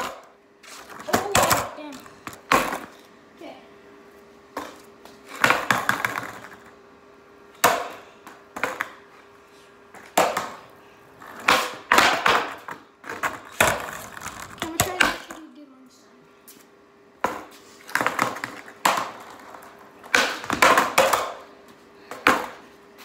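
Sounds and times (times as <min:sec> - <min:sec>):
skateboard clattering on concrete: 0:00.9 - 0:02.9, 0:04.6 - 0:06.7, 0:10.0 - 0:10.6, 0:11.2 - 0:15.4, 0:17.2 - 0:21.5.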